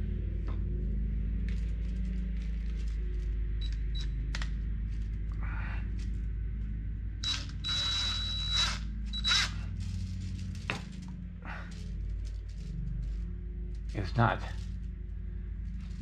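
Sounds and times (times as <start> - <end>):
cordless drill whining: 7.2 - 9.6.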